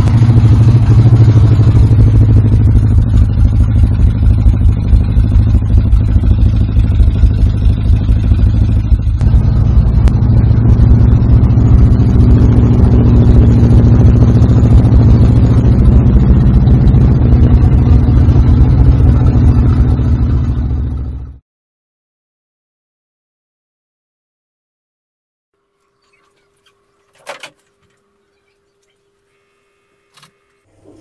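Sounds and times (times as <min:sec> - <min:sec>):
car engine running steadily: 0:00.0 - 0:21.4.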